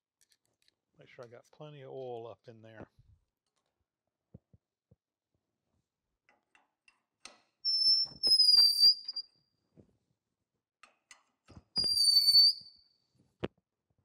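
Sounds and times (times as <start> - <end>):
hand reamer squealing: 7.6 - 9.2, 11.8 - 12.7.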